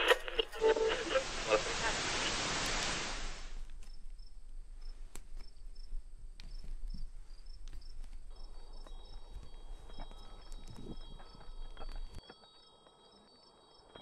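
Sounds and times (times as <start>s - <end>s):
hissing wash: 0.4s - 3.6s
crickets chirping: 0.6s - 14.0s.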